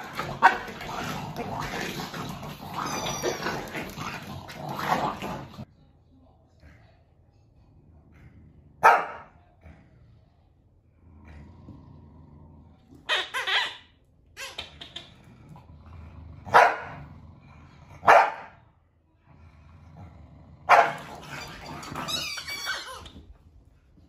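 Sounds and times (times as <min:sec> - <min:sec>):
dog barking: 0:08.8 - 0:09.4, 0:16.5 - 0:17.0, 0:18.0 - 0:18.6, 0:20.7 - 0:21.0.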